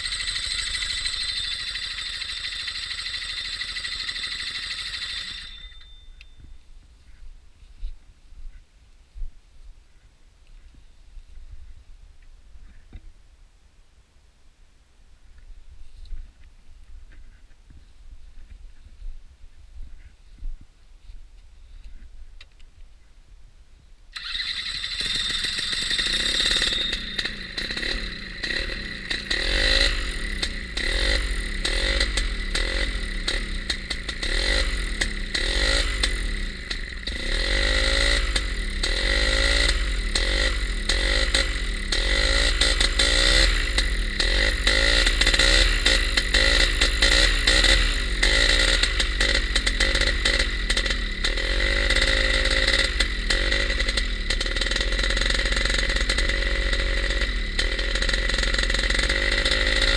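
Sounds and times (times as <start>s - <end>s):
paramotor engine revving: 24.2s - 59.9s.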